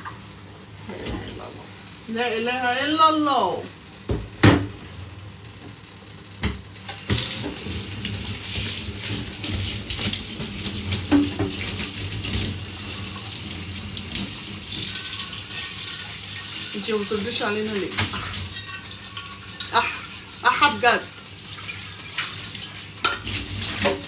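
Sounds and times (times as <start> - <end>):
tap water splashing into sink: 6.4 - 16.7, 17.9 - 18.4, 21.6 - 24.0.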